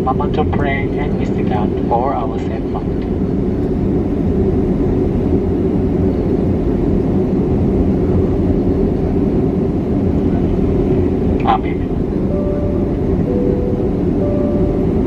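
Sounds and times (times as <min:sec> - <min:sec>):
airplane cabin rumble while taxiing: 0:00.0 - 0:15.0.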